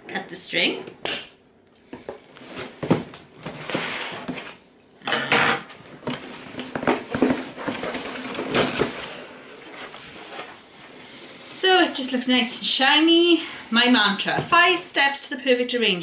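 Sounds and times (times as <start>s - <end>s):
cardboard knocks and rustles: 2.6s - 4.4s, 6.0s - 9.1s
loud cardboard scrape: 3.5s - 4.6s.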